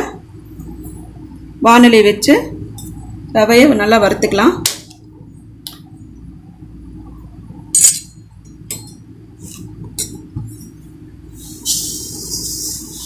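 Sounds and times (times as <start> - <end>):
steady low hum: 0.0 - 13.0
kitchen utensils clinking: 7.8 - 9.0.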